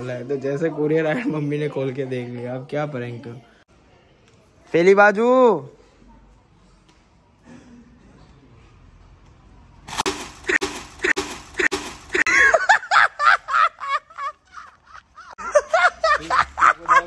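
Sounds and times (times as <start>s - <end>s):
person laughing: 10.4s - 17.0s.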